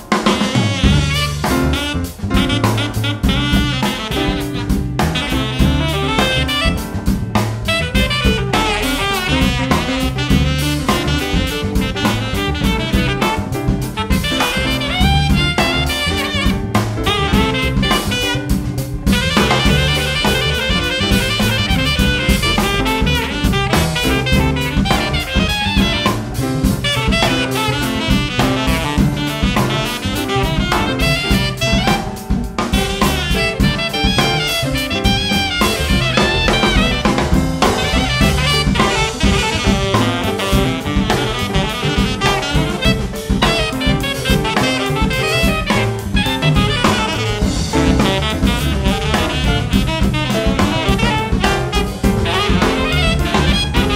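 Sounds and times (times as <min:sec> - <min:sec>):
alto saxophone: 0:00.0 - 0:53.9
bass: 0:00.0 - 0:53.9
drum kit: 0:00.0 - 0:53.9
piano: 0:00.0 - 0:53.9.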